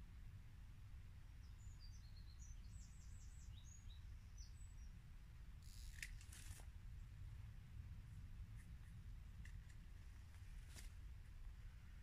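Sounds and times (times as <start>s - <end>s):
low background noise: 0.0s - 12.0s
songbird singing: 1.2s - 6.0s
brief rustle: 5.6s - 6.7s, 8.5s - 11.0s.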